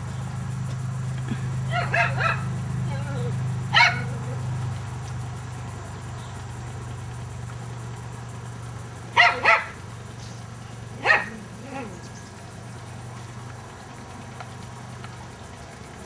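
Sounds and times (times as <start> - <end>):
steady low hum: 0.0 - 16.0
dog barking high-pitched: 1.7 - 2.5, 3.7 - 4.4, 9.1 - 9.8, 11.0 - 12.0.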